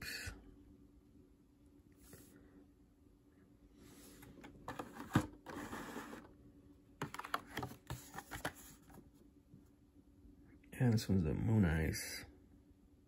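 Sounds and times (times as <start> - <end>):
cardboard and plastic rustling: 4.1 - 6.3, 7.0 - 9.0.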